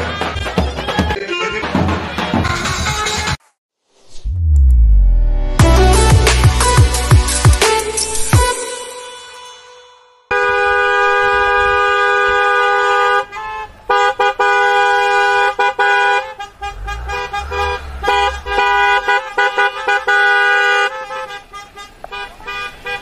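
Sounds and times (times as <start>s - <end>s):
car horns honking: 10.3s - 23.0s.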